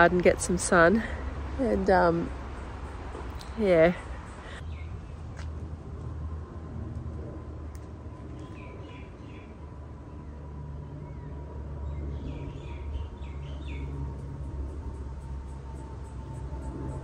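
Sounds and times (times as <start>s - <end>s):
steady low rumble: 0.0s - 17.0s
birds chirping: 0.2s - 5.4s, 7.7s - 14.1s.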